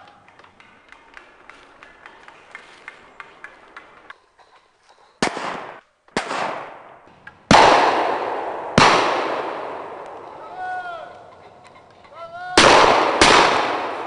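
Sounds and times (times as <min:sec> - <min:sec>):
echoing gunshots: 0:05.2 - 0:10.4, 0:12.6 - 0:14.0.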